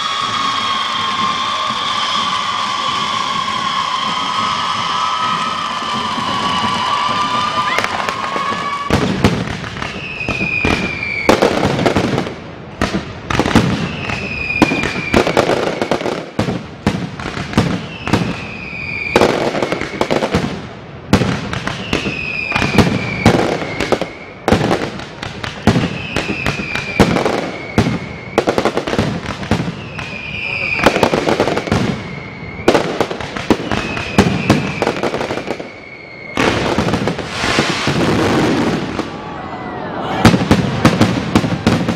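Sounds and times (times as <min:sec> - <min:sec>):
firework whistle: 0:00.0 - 0:20.6, 0:21.2 - 0:41.9
fireworks bangs and crackles: 0:00.0 - 0:41.9.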